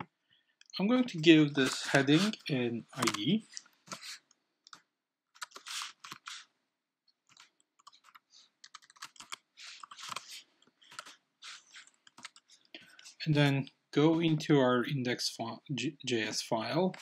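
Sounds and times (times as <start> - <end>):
typing on computer keyboard: 7.3 - 10.3, 11.8 - 12.5.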